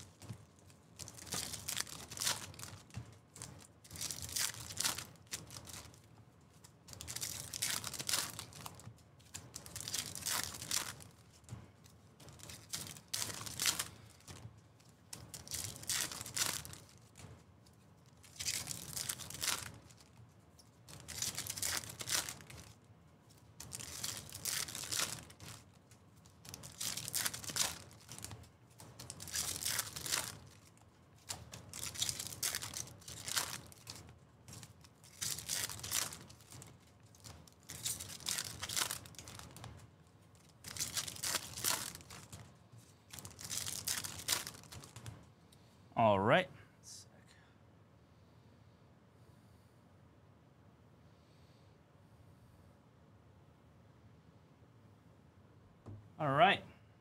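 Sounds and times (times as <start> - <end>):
foil wrappers torn and crinkled: 0.0 - 0.4, 1.0 - 11.4, 12.3 - 14.4, 15.3 - 17.2, 18.2 - 20.2, 20.9 - 22.8, 23.5 - 28.4, 29.0 - 39.8, 40.4 - 45.0.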